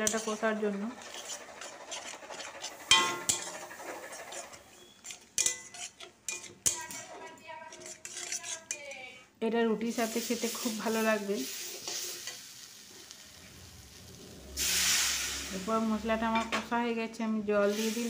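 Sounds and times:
metal spoon scraping metal pan: 0.0s - 9.2s, 10.0s - 12.5s.

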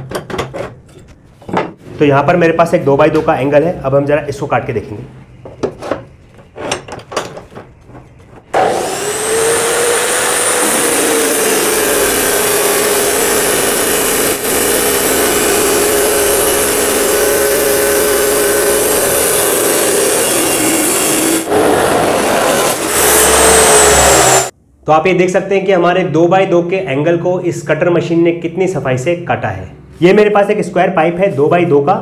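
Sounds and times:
chop saw grinding steel: 8.5s - 24.5s.

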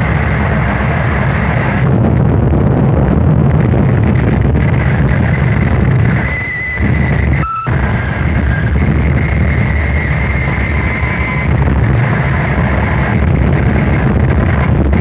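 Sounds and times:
harsh distorted noise music: 0.0s - 15.0s
thin high whistle: 6.3s - 8.7s.

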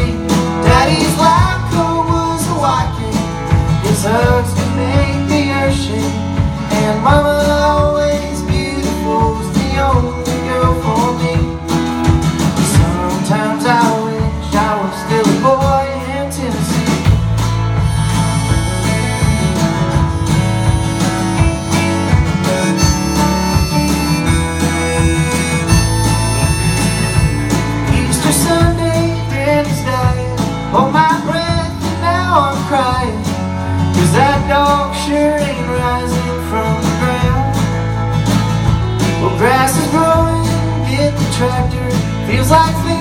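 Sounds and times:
live band playing: 0.0s - 43.0s
lead guitar bending notes: 17.6s - 28.2s.

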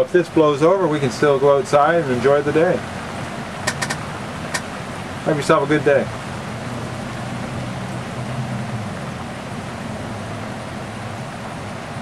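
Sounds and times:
rain falling: 0.0s - 12.0s.

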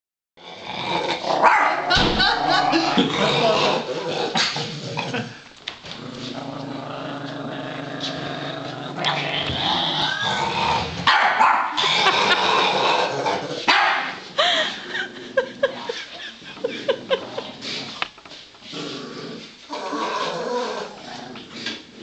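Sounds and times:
dog barking: 1.4s - 1.9s, 11.1s - 11.8s, 13.7s - 14.2s
small dog growling: 2.4s - 11.1s, 18.6s - 22.0s.

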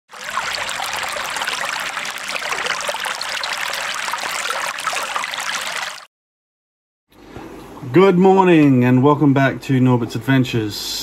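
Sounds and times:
stream trickling and splashing: 0.1s - 6.1s.

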